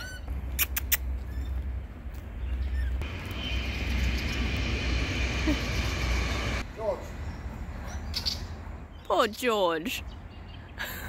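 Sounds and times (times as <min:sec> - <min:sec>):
low mechanical rumble: 0:01.6 - 0:06.7
steady high whine: 0:03.0 - 0:06.7.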